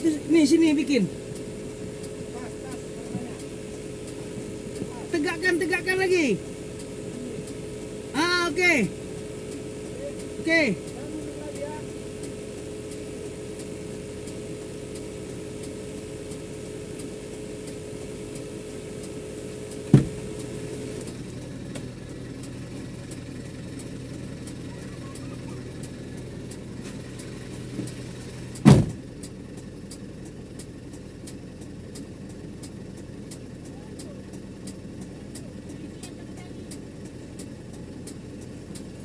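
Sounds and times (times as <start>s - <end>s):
excavator diesel engine idling: 0.0s - 39.0s
sharp knocks: 19.9s - 20.2s, 28.6s - 29.0s.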